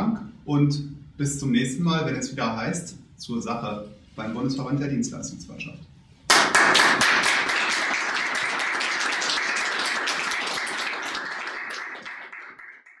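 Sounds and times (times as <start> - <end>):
crowd applauding: 6.3 - 13.0.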